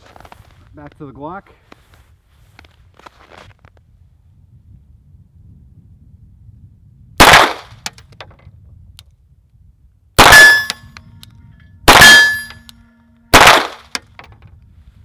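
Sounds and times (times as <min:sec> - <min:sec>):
pistol shots: 0:07.2 - 0:07.8, 0:10.2 - 0:10.8, 0:11.9 - 0:12.6, 0:13.3 - 0:14.0.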